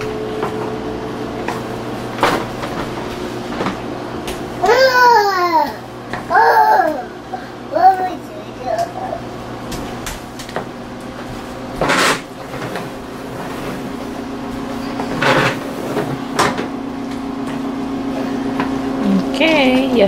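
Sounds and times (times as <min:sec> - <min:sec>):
steady hum: 0:00.0 - 0:20.0
plastic stool scraping on tiles: 0:09.8 - 0:16.8.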